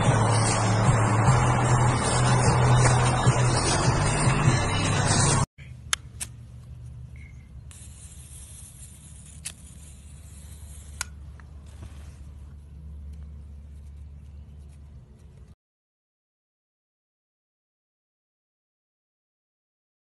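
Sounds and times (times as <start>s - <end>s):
low outdoor rumble: 0.0s - 15.6s.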